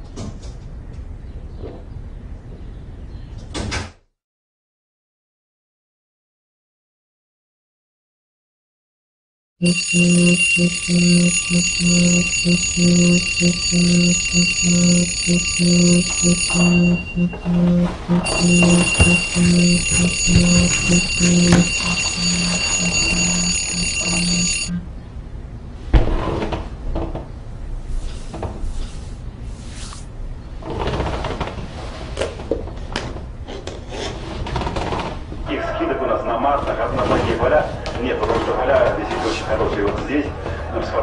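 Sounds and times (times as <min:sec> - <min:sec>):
high alarm ringing tone: 0:09.6 - 0:24.8
pulsing low alarm buzz: 0:09.6 - 0:24.9.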